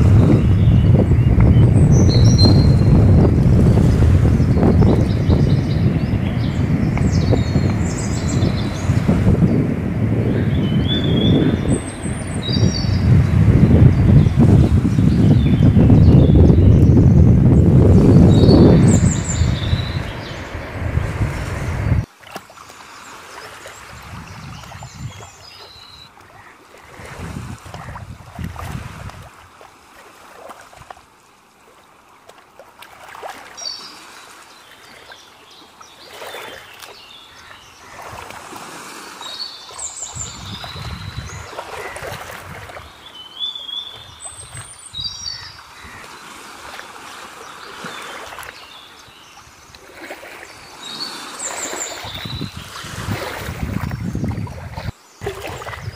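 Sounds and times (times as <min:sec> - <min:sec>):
waves lapping against rocks: 0:00.0 - 0:10.0, 0:17.8 - 0:55.9
wind gusts on microphone: 0:00.0 - 0:22.1, 0:23.7 - 0:26.1, 0:26.8 - 0:29.6, 0:37.8 - 0:43.1, 0:43.8 - 0:55.9.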